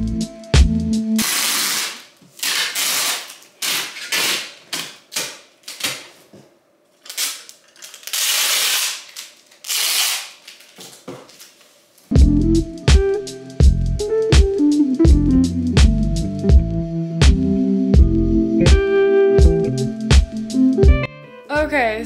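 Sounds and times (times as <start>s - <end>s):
packing tape ripping: 1.2s - 6.2s, 7.0s - 11.7s.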